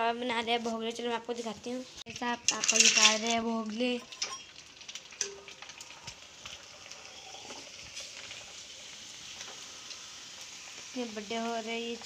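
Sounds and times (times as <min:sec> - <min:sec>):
snacks sizzling in hot oil: 0:01.3 - 0:12.0
small crackles and clicks: 0:02.1 - 0:12.0.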